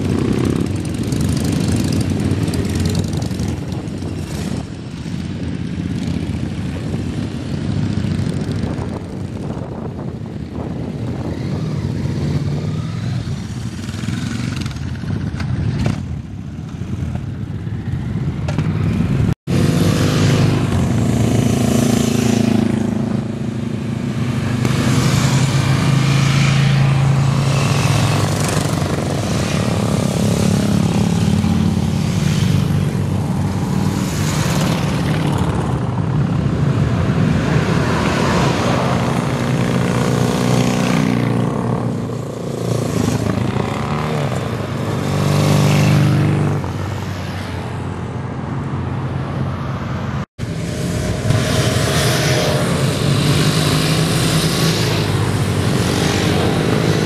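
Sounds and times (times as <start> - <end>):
motorcycles riding past: 0.0 - 57.0
car passing: 19.0 - 57.0.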